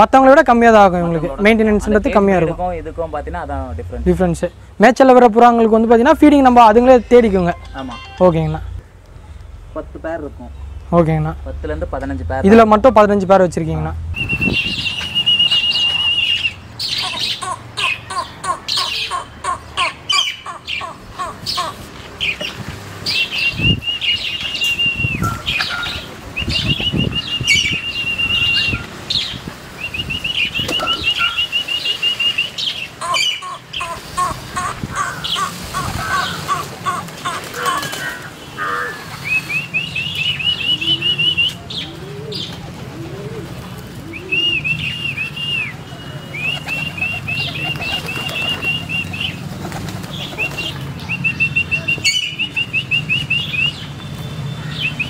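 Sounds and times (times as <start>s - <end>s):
pigeons cooing: 14.7s - 29.3s, 30.2s - 45.7s, 46.4s - 50.8s
pigeons flapping wings: 35.7s - 38.4s, 46.5s - 50.8s.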